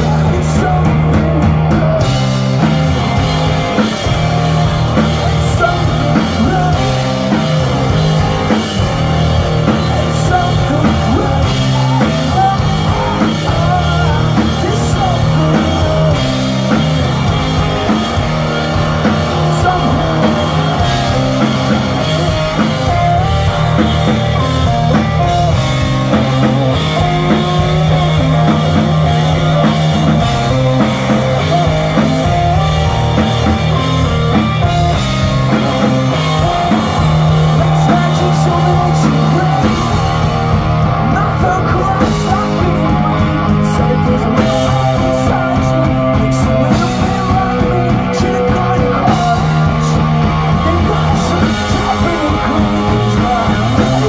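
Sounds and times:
drum kit: 0.0 - 54.0
electric guitars: 0.0 - 54.0.

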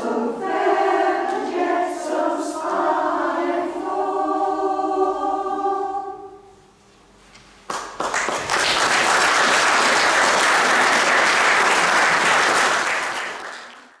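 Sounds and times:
audience applause: 7.7 - 14.0.

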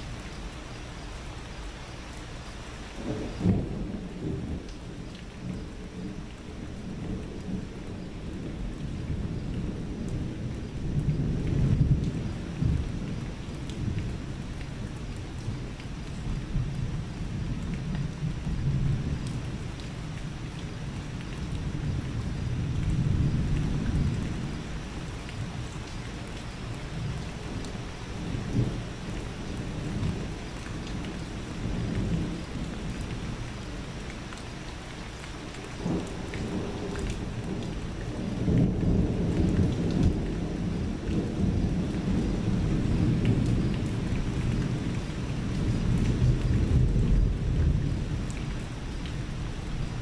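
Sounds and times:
steady rain: 0.0 - 50.0
thunder rumbling: 3.0 - 19.9, 35.8 - 50.0.

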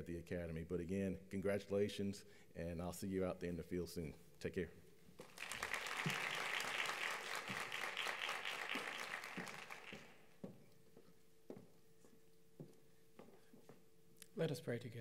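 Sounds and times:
audience applauding: 5.2 - 10.3.

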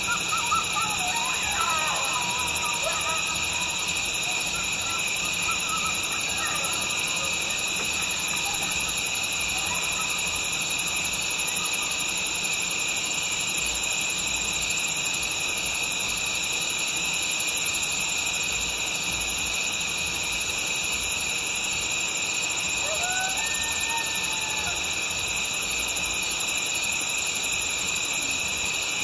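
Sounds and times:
distant coyote howls and yips: 0.0 - 13.1, 22.4 - 29.0
insects chirring: 0.0 - 29.0.

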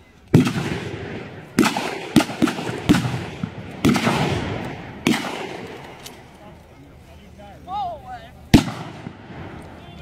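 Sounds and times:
rifle shots echoing: 0.3 - 6.2, 8.5 - 9.8.

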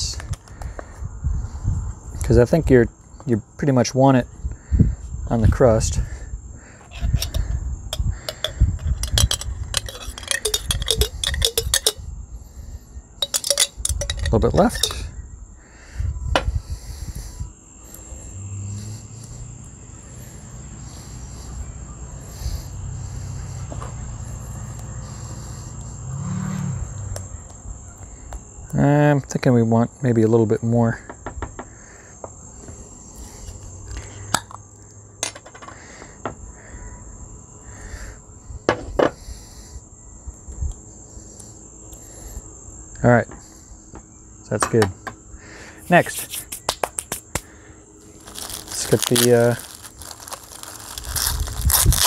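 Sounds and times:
crickets chirring: 0.0 - 52.0
metal spoon clinking on glass jar: 6.9 - 12.0, 13.2 - 15.1.

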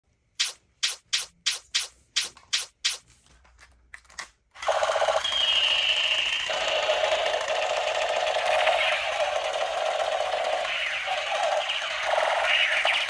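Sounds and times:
sharp snaps: 0.4 - 3.1
toy gun buzzing rattle: 4.6 - 13.0.

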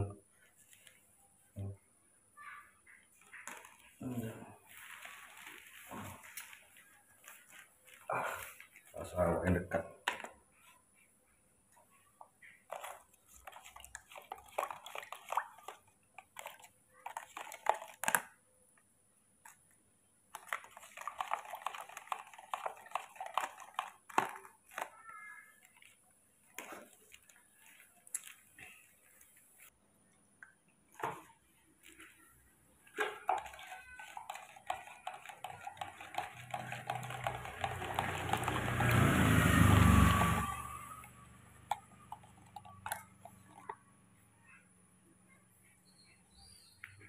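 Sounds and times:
rustling and handling noises: 0.2 - 1.6, 2.8 - 39.1.

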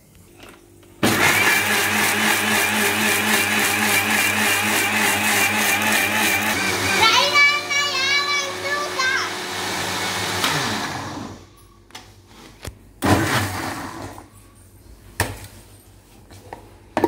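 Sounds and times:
mixer grinder motor winding down: 1.0 - 7.1, 8.5 - 11.4.

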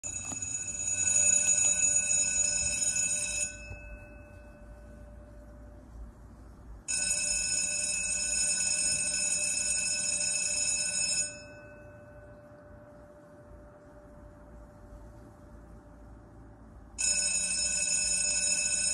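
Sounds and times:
electric bell ringing: 0.0 - 5.6, 6.9 - 12.8, 17.0 - 18.9
faint gong hum: 0.2 - 6.5, 11.3 - 16.1.

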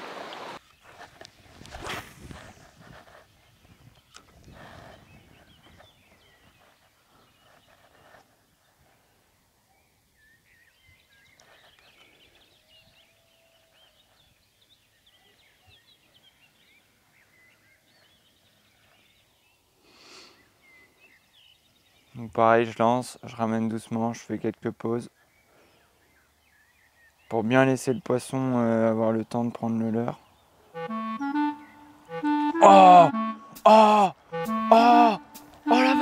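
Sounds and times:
birds chirping: 3.2 - 8.8, 25.0 - 36.0.

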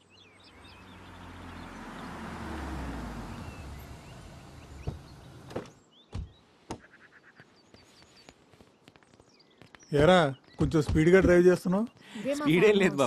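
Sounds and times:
car engine and tyres on wet driveway: 0.2 - 5.8.

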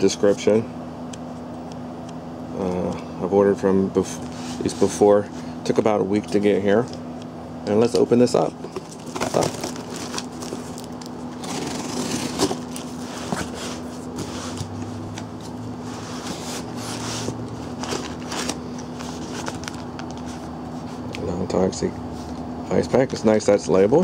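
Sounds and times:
packing paper rustling: 7.8 - 21.3.

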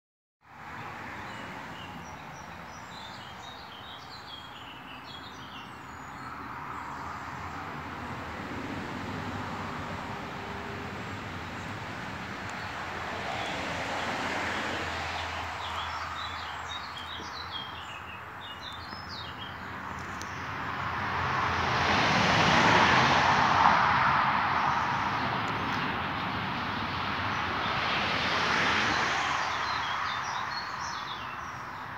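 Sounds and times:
small birds chirping: 1.3 - 7.7, 15.1 - 20.6, 29.3 - 31.9.

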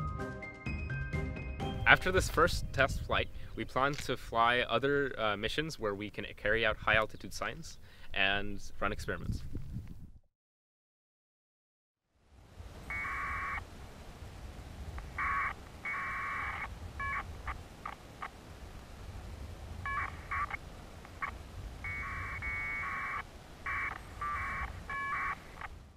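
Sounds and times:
steady low rumble: 1.8 - 10.2
electronic data tones: 12.9 - 13.6, 15.2 - 18.3, 19.8 - 20.6, 21.2 - 25.7.

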